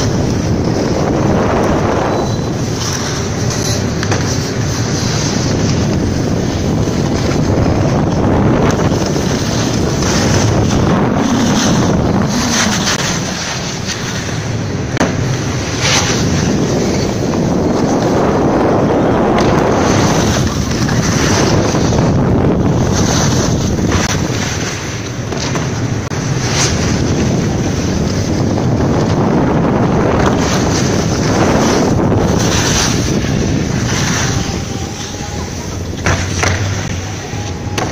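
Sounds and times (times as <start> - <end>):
wind rushing on microphone: 0.0 - 37.9
snowboards scraping snow: 28.8 - 34.6.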